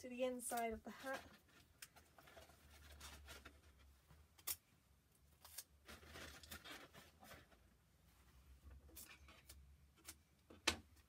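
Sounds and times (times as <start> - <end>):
paper and tape crinkling: 0.5 - 4.6, 5.4 - 7.7.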